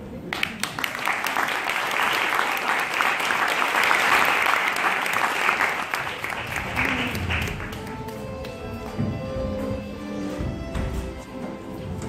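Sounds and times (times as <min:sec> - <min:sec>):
audience applause: 0:00.2 - 0:09.0
music: 0:07.0 - 0:12.0.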